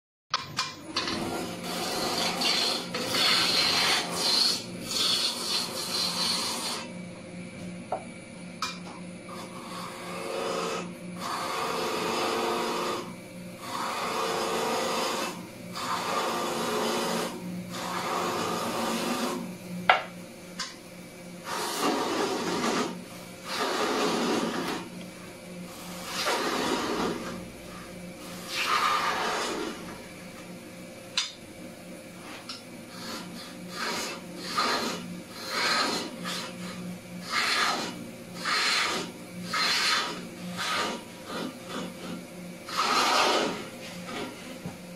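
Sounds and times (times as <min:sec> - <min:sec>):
chisel scraping spinning wood: 0:00.8 - 0:06.9, 0:08.7 - 0:20.1, 0:21.4 - 0:30.1, 0:32.2 - 0:44.7
wood lathe humming: 0:00.9 - 0:07.0, 0:09.2 - 0:44.9.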